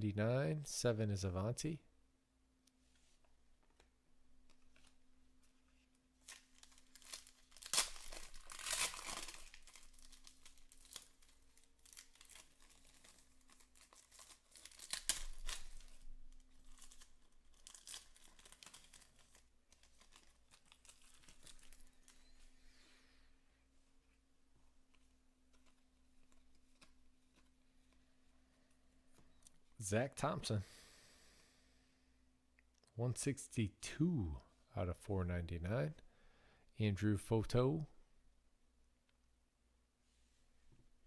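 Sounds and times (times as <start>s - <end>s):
foil wrapper tearing and crinkling: 6.2s - 22.4s.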